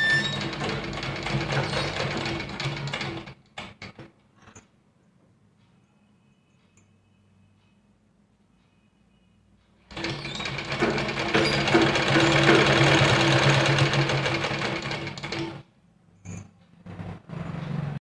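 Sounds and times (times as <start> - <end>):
sewing machine stitching: 0.0 - 3.9, 9.9 - 15.6.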